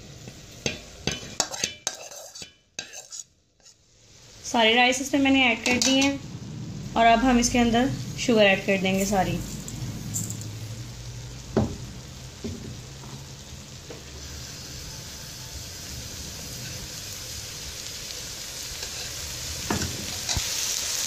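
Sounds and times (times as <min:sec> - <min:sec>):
rice sizzling in oil: 0:00.0 - 0:21.0.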